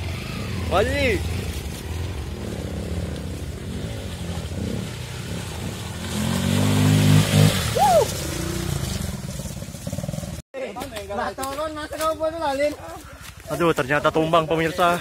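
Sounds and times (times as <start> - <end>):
motorcycle engine revving: 0.0 - 10.4.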